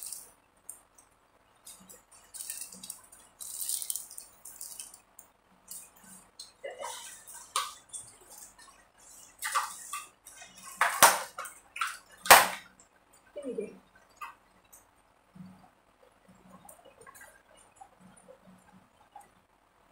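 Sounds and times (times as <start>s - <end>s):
water splashing: 5.6s - 12.7s.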